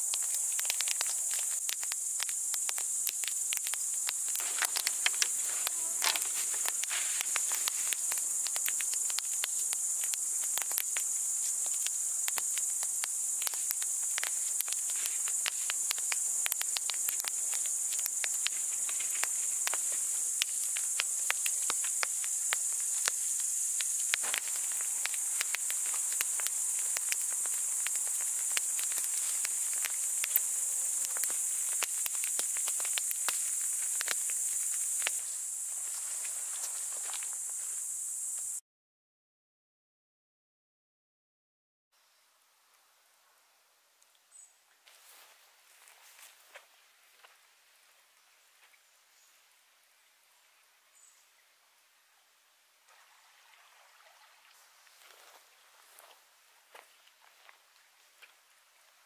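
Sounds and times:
campfire crackling and popping: 0:00.0 - 0:37.6
crickets chirping: 0:00.0 - 0:38.6, 0:44.3 - 0:51.5.

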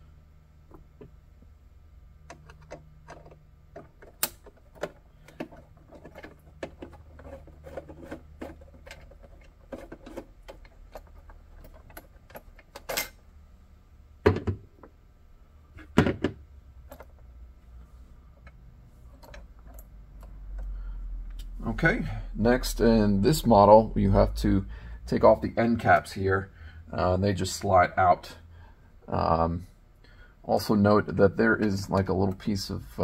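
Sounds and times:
knocks and thuds: 0:14.2 - 0:14.7, 0:15.9 - 0:16.4.

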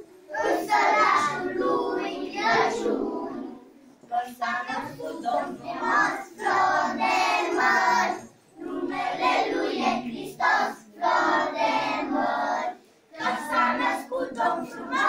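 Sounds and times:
children singing: 0:00.0 - 0:03.7, 0:04.6 - 0:15.0.

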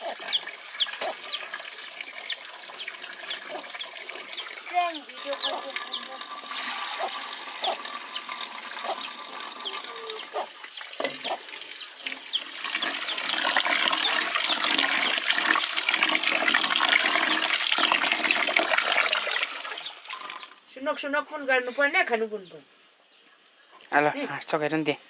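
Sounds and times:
birds calling: 0:00.0 - 0:15.0, 0:19.0 - 0:20.3
rice washed by hand: 0:00.0 - 0:20.6
tap water running into a pot: 0:00.0 - 0:20.6.

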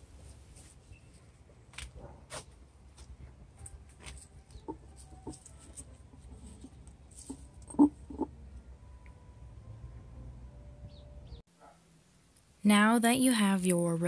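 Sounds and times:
petals rustling: 0:00.0 - 0:08.3.

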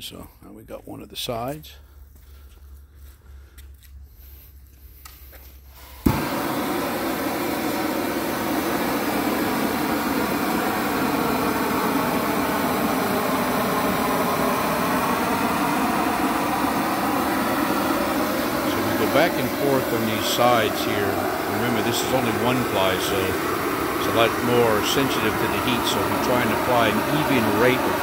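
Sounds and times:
gas heat gun igniting: 0:05.0 - 0:28.0
heat gun burning with rush: 0:05.0 - 0:28.0.

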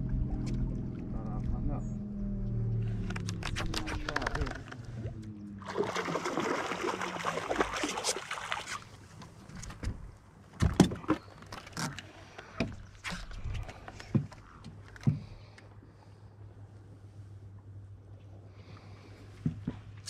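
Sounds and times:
fish splashing in water: 0:05.6 - 0:09.0
knocks and thumps on boat: 0:09.6 - 0:11.2.

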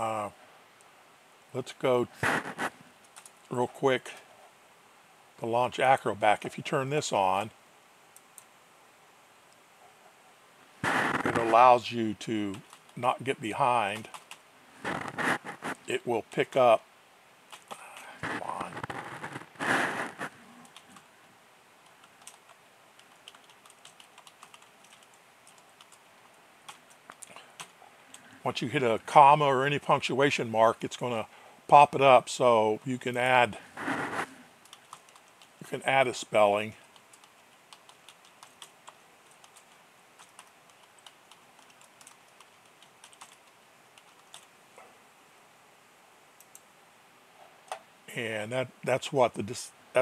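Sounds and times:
typing on keyboard: 0:03.0 - 0:03.4, 0:13.9 - 0:14.4, 0:17.5 - 0:18.1, 0:21.8 - 0:26.0, 0:26.7 - 0:27.7, 0:34.6 - 0:35.6, 0:36.8 - 0:44.5.

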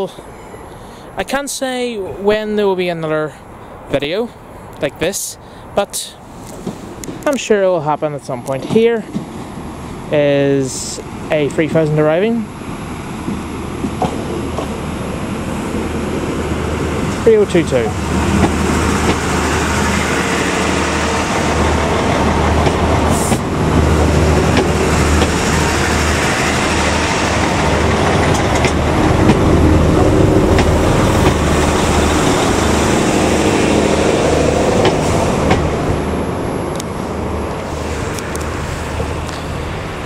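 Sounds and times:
train diesel engines humming: 0:00.0 - 0:40.0
wheels clicking on track: 0:17.1 - 0:32.7.

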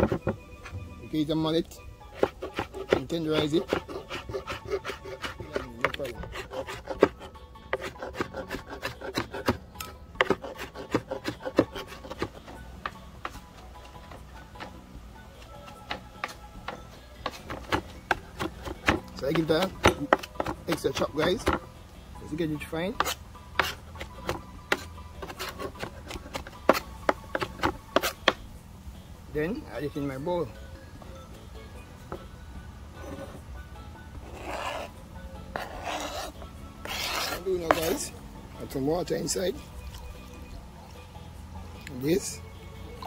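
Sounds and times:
knife chopping on cutting board: 0:02.2 - 0:09.6, 0:10.2 - 0:12.4, 0:15.9 - 0:21.7, 0:23.0 - 0:28.4.

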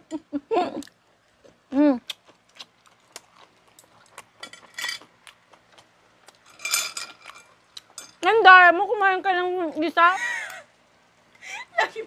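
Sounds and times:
utensils clicking on plates: 0:06.5 - 0:08.3.

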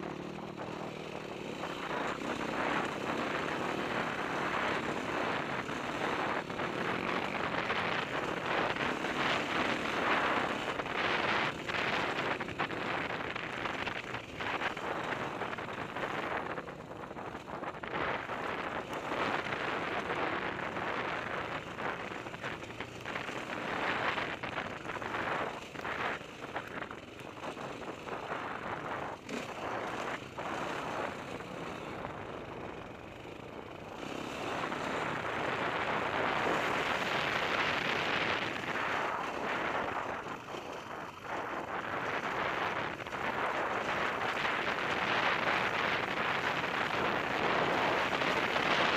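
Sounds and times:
dirt bike engine: 0:00.0 - 0:48.9
wind noise on microphone: 0:00.0 - 0:48.9.

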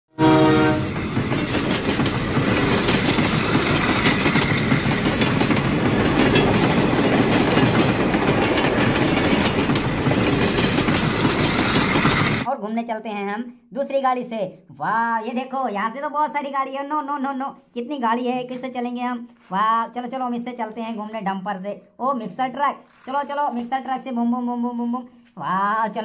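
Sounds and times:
train horn blast: 0:00.1 - 0:01.9
train rumble: 0:00.2 - 0:12.5
wheels clattering on track: 0:00.9 - 0:12.5.

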